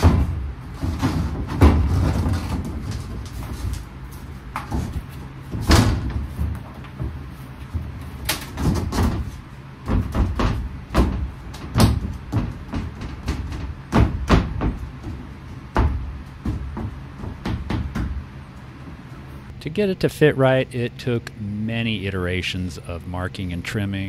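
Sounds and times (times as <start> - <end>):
wooden panel knocks and thumps: 0.0 - 3.7, 4.6 - 18.3.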